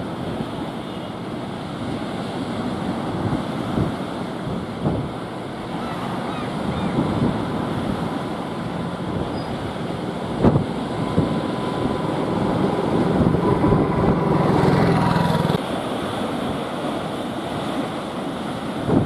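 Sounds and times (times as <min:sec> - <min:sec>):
surf: 0:00.0 - 0:19.0
wind: 0:00.0 - 0:19.0
engine drone: 0:04.6 - 0:16.3.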